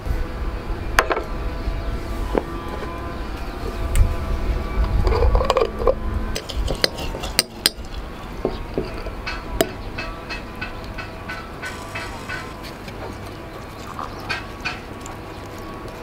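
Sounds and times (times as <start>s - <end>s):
scraping on glass jar: 5.1s - 9.5s.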